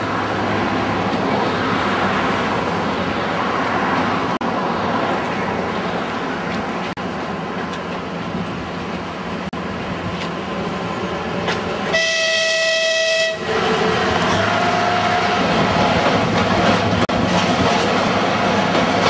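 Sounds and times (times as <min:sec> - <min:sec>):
diesel locomotive engine and wheels: 0:00.0 - 0:19.0
train horn blast: 0:11.9 - 0:15.6.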